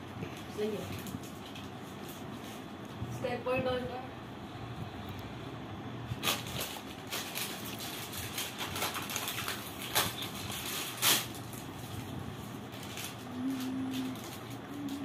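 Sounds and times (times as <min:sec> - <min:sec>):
plastic snack packet crinkling: 0:06.2 - 0:15.0.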